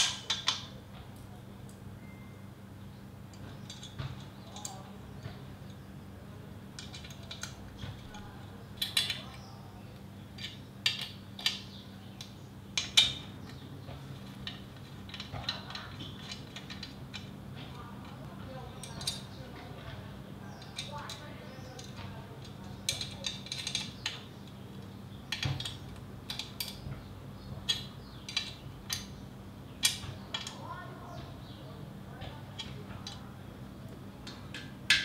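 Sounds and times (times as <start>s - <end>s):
metallic clicks of bolts and spanner: 6.8s - 7.6s, 8.8s - 9.3s, 14.4s - 17.3s, 21.8s - 24.2s, 27.7s - 29.1s, 34.2s - 35.0s.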